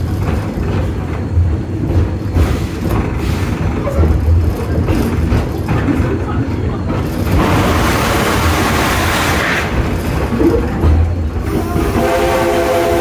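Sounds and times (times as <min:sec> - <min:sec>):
train cars rumbling on track: 0:00.0 - 0:13.0
rushing steam hiss: 0:07.3 - 0:10.2.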